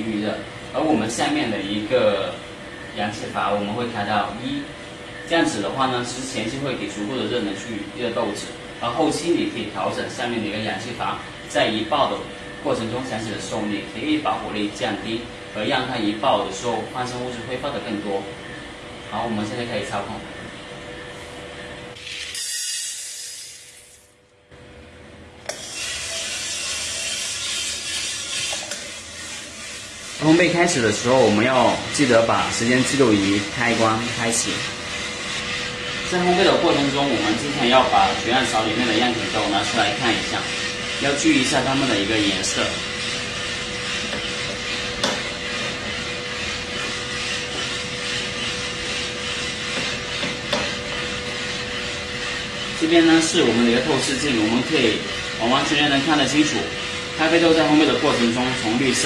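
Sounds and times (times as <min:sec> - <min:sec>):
burner and fan rushing: 0:25.5 - 0:59.0.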